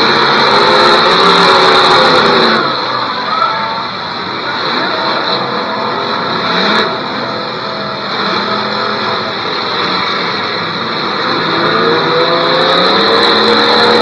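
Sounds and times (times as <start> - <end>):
car engines revving: 0.0 - 14.0
high-pitched whine: 0.0 - 14.0.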